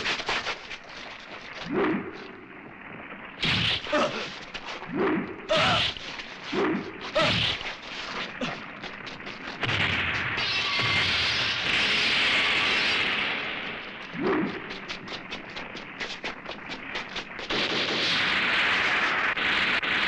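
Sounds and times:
steady rushing noise: 0.0s - 20.0s
monster cries: 5.5s - 5.9s.

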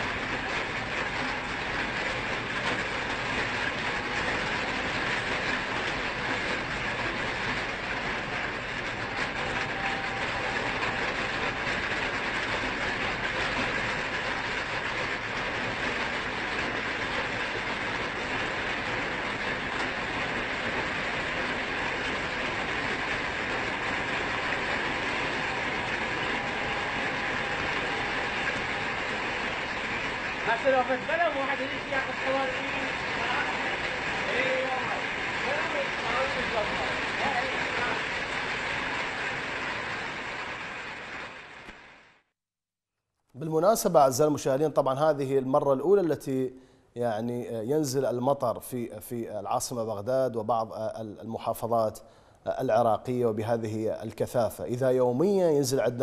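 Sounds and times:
heavy rain on standing water: 0.0s - 42.3s.

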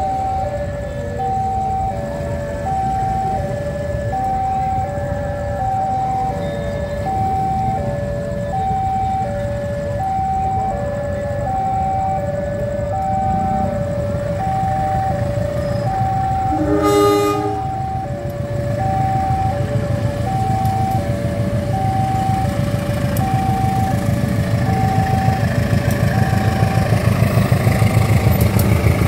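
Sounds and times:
diesel locomotive rumble: 0.0s - 29.0s
level crossing two-tone alarm: 0.0s - 29.0s
train horn blast: 16.5s - 18.0s.

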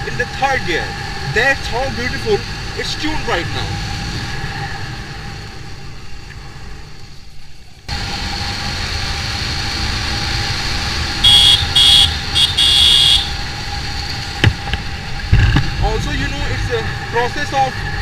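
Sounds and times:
wind and road noise: 0.0s - 18.0s
horn beeping: 11.2s - 13.5s.

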